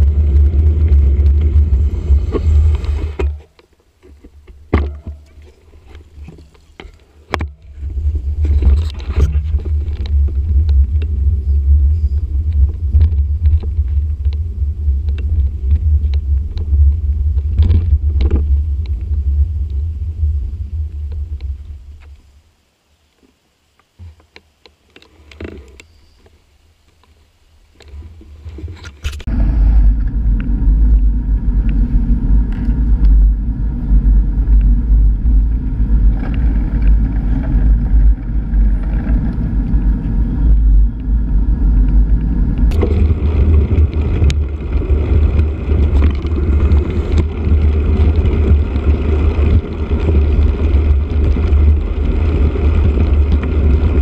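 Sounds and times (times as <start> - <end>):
wind buffeting microphone: 0.0 - 3.4, 7.3 - 22.1, 29.0 - 54.0
road rumble: 0.0 - 54.0.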